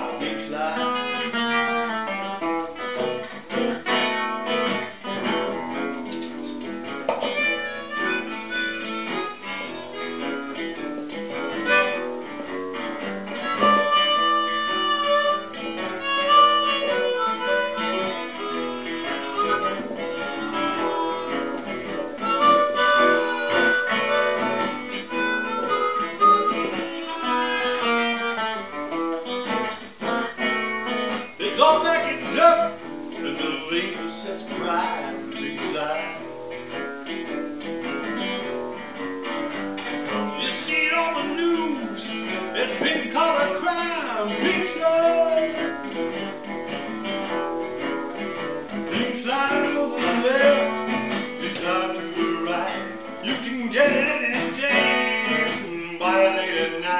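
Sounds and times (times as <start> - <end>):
man singing: 0.0 - 1.9, 22.3 - 26.8, 31.3 - 36.5, 40.2 - 45.8, 48.7 - 56.9
acoustic guitar picking: 0.0 - 56.9
blues harmonica: 0.0 - 56.9.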